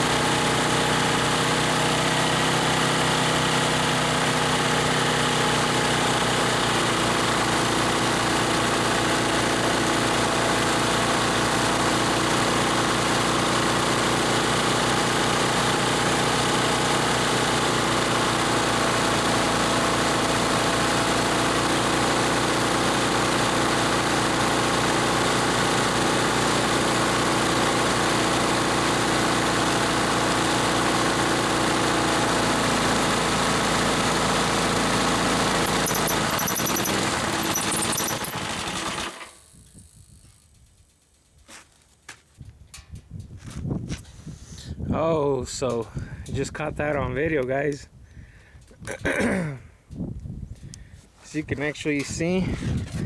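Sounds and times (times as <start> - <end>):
air compressor pump running: 0.0 - 40.4.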